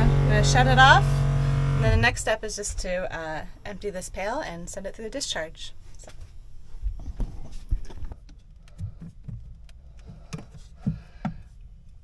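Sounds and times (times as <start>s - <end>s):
low rumble: 0.0s - 4.3s
hoses and fittings knocking: 1.6s - 2.9s, 6.9s - 12.0s.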